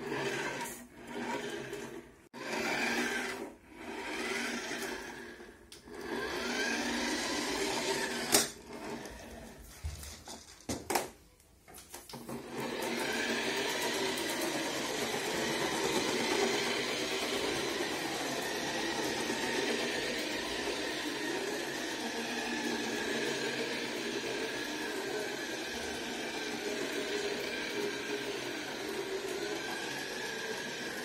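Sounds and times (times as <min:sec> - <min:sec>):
toy motor and gears whirring: 0:00.0 - 0:09.6, 0:12.4 - 0:31.0.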